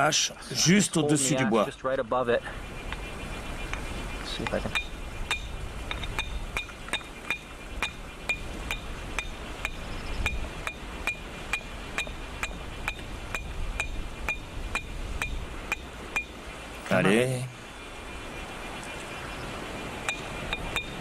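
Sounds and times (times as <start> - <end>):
stone striking steel axe head: 4.7 - 16.3.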